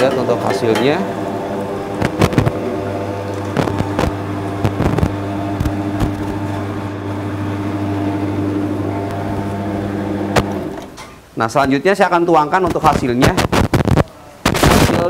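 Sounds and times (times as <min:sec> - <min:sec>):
motor hum with steady tones: 0:00.0 - 0:11.0.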